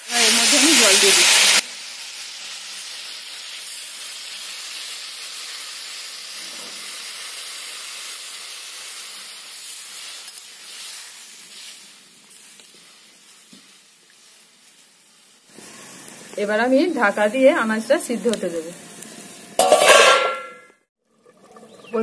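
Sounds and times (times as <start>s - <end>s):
water hissing in hot oil: 0.0s - 20.1s.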